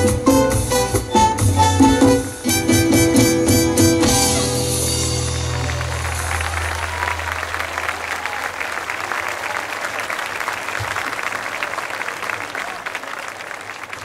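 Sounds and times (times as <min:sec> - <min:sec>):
audience applauding: 0:05.0 - 0:14.0.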